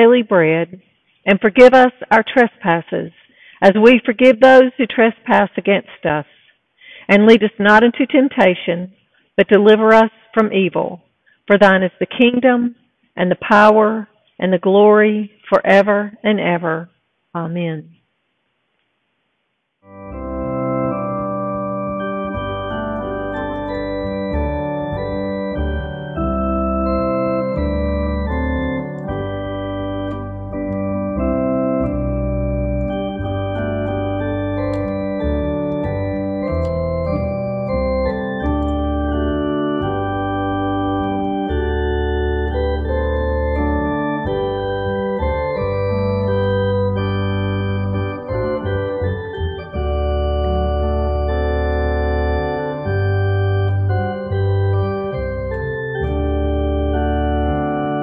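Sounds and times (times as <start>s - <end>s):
electronic organ playing chords: 19.8s - 58.0s.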